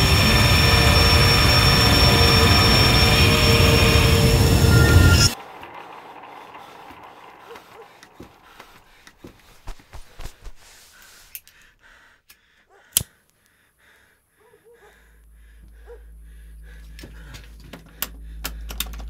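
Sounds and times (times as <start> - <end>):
low steady hum: 14.1 - 19.0
small clicks: 17.0 - 19.0.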